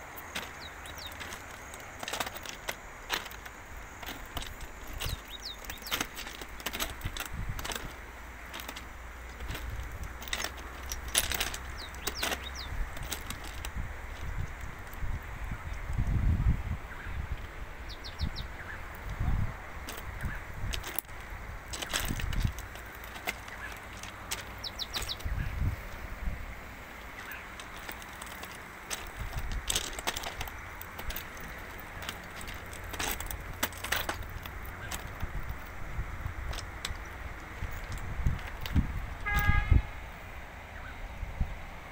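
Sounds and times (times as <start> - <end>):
footsteps crunching on ballast stones: 0.0 - 15.2, 17.4 - 39.8
wind rumble on microphone: 0.0 - 41.9
bird chirps: 0.5 - 1.2, 5.0 - 6.1, 11.6 - 12.8, 17.9 - 18.9, 24.6 - 25.6.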